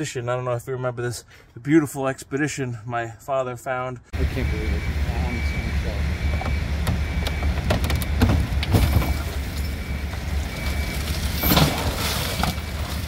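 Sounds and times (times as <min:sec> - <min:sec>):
high beeping: 0:04.1 - 0:08.2, 0:08.8 - 0:11.6
vehicle crashing onto wheels: 0:07.6 - 0:09.8, 0:10.5 - 0:13.0.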